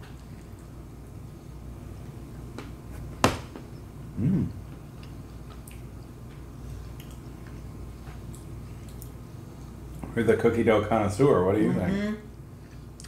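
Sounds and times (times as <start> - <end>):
person humming: 4.2 - 4.6, 11.6 - 12.2
people chewing: 4.9 - 9.6.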